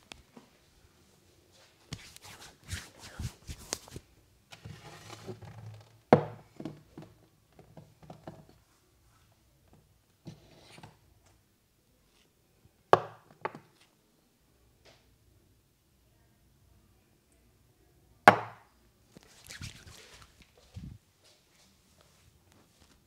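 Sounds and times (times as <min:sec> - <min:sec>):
hands rubbing hair: 0:01.6 - 0:04.1, 0:19.2 - 0:21.0
hands slapping a head: 0:01.9 - 0:04.0, 0:18.3 - 0:20.5.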